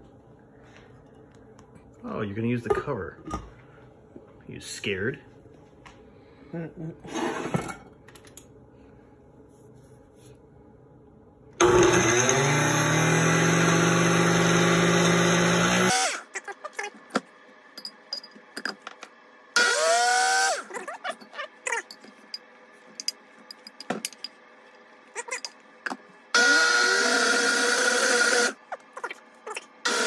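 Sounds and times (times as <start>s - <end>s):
blender motor whine: 11.6s - 16.4s, 19.6s - 21.3s, 26.3s - 30.0s.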